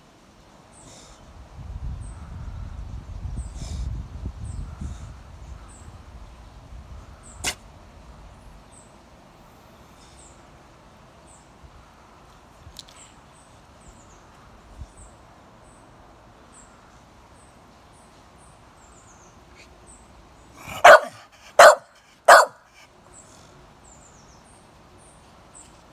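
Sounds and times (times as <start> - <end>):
dog barking: 20.6 - 22.8.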